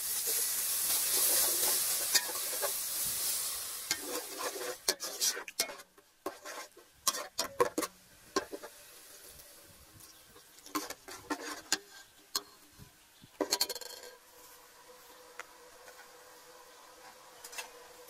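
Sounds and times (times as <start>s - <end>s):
metal ladle scraping a pot: 1.0s - 8.7s, 10.7s - 12.6s.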